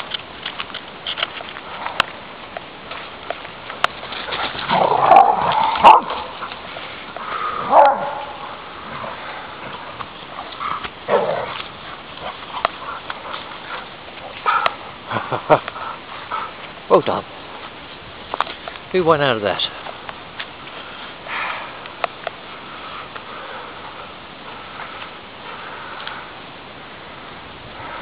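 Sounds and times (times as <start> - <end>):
dogs barking and yipping: 4.0 - 16.7.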